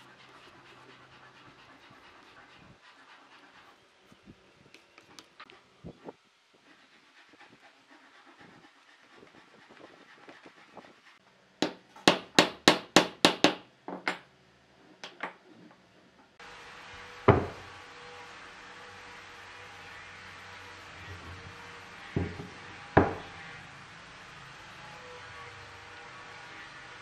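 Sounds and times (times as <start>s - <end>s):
hammer striking wooden block: 11.6s - 13.6s
boards thudding on workbench: 17.3s - 17.6s.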